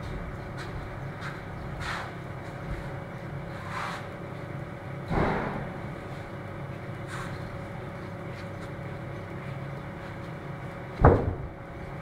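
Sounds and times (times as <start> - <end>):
machinery hum: 0.0 - 12.0
sharp loud thud: 5.1 - 5.8.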